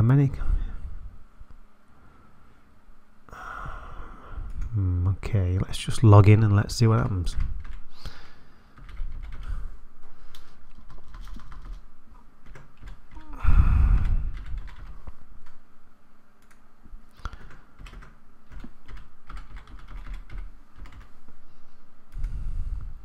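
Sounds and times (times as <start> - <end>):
loud low noise: 13.3 - 14.6.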